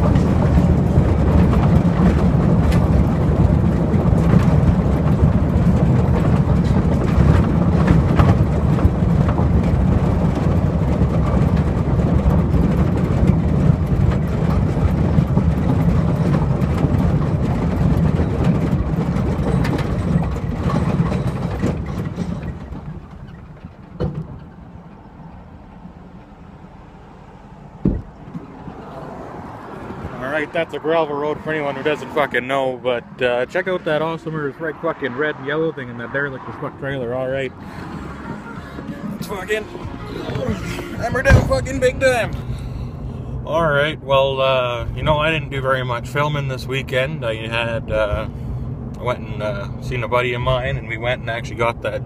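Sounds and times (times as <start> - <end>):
knocks: 0.0 - 24.6, 27.8 - 28.6
tyres rumbling on gravel: 0.0 - 52.0.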